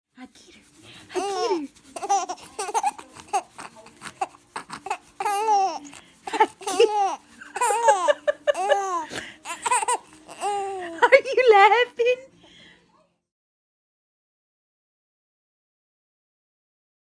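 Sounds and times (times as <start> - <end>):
baby laughing and babbling: 1.2 - 11.2.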